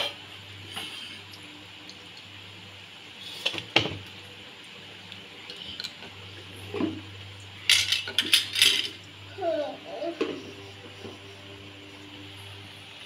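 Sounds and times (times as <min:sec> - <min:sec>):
metal utensils clattering: 0:07.6 - 0:09.0.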